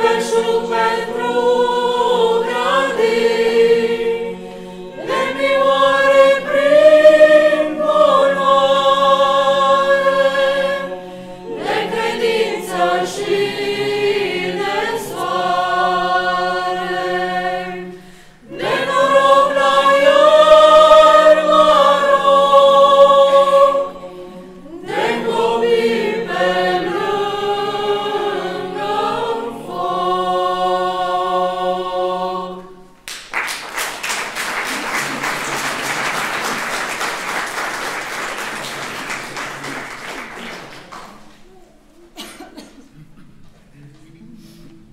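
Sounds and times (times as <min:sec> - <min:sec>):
choir singing a carol: 0:00.0 - 0:33.0
applause: 0:33.0 - 0:41.5.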